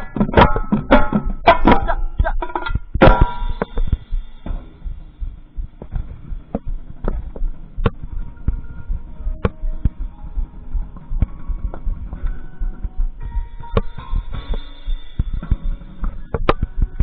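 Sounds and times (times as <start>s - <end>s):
tenor drum hit: 0.0s - 8.1s
low thuds: 0.0s - 17.0s
faint held instrument notes: 7.9s - 17.0s.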